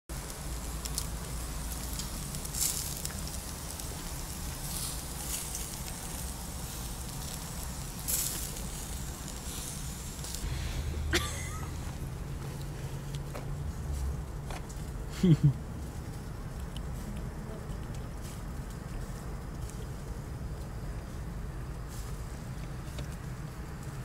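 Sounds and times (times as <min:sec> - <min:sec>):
meat sizzling on a grill: 0:00.1 - 0:17.4, 0:18.1 - 0:24.0
low rumble: 0:00.2 - 0:24.0.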